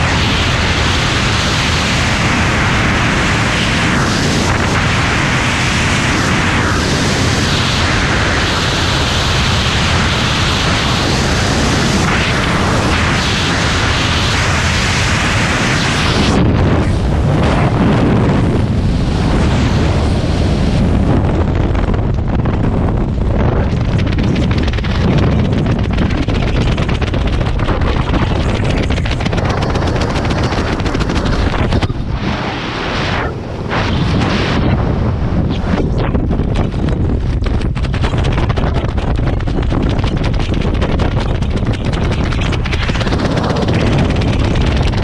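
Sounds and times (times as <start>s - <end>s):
wind rushing over microphone: 0.0s - 45.0s
canopy fabric fluttering: 23.0s - 32.6s, 35.6s - 45.0s.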